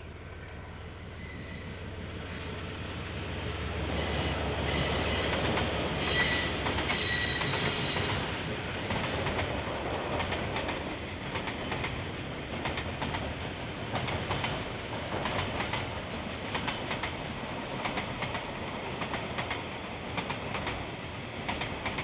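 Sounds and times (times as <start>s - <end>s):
train rumble: 0.0s - 22.0s
wheels clicking over rail joints: 5.2s - 8.2s, 8.8s - 22.0s
wheels squealing: 6.0s - 8.2s.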